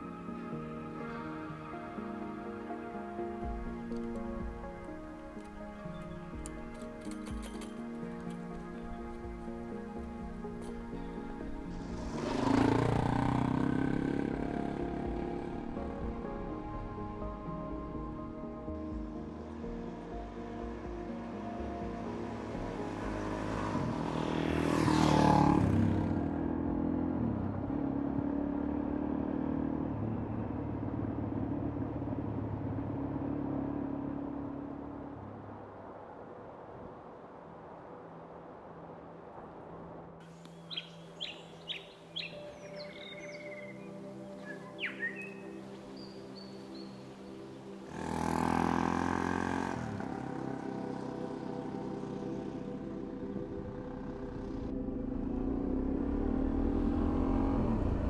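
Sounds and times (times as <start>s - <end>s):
dirt bike passing by: 10.2s - 16.2s, 22.2s - 35.4s, 40.7s - 58.0s
motorcycle engine running: 11.7s - 16.0s, 47.9s - 58.0s.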